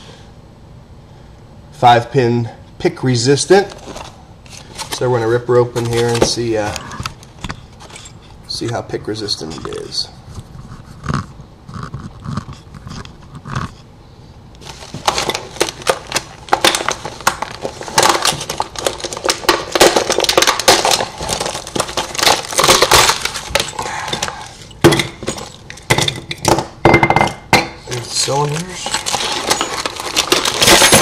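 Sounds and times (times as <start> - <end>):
plastic packaging crackling: 14.6 - 26.0, 27.9 - 31.0.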